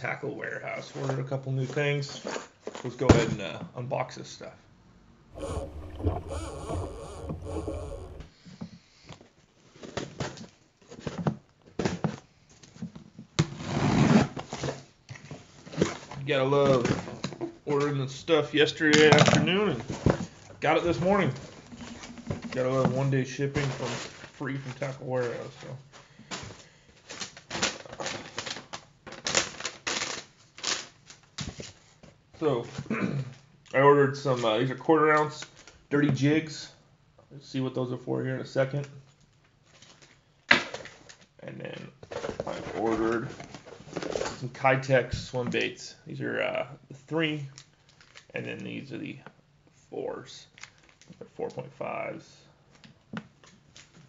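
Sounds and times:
logo intro deep rumble: 0:05.4 - 0:08.3
paper rustling and crinkling: 0:39.6 - 0:41.2.

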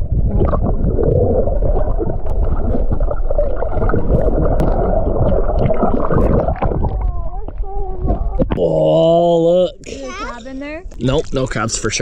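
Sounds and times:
underwater clicks and bubbling: 0:00.0 - 0:08.6
underwater rumble and gurgling: 0:00.0 - 0:08.8.

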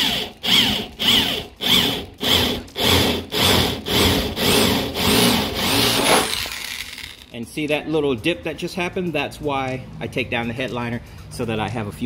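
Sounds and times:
power drill grinding through metal: 0:00.0 - 0:07.3.

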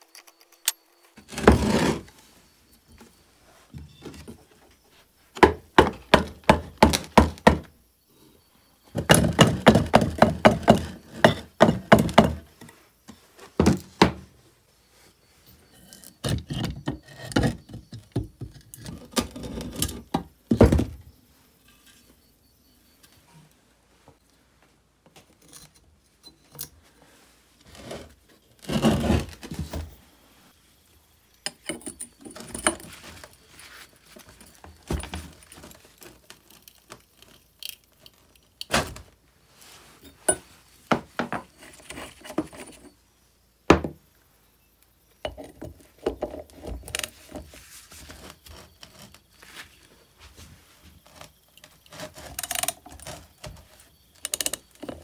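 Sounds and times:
metal tools clinking: 0:31.4 - 0:38.5.

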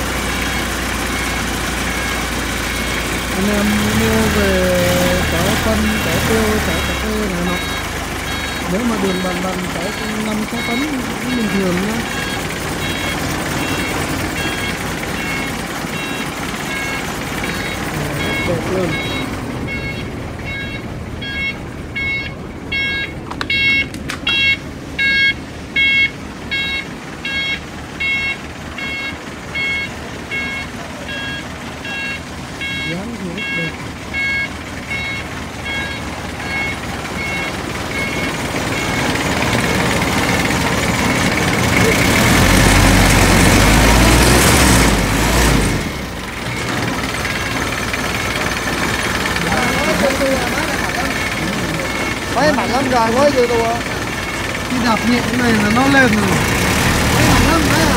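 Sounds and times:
truck engine running: 0:00.0 - 0:57.9
electronic beeper beeping: 0:02.8 - 0:39.5.

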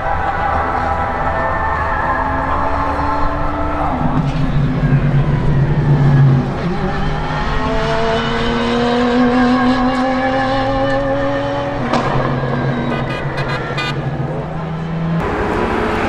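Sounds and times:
sports car engine accelerating: 0:00.4 - 0:16.0.

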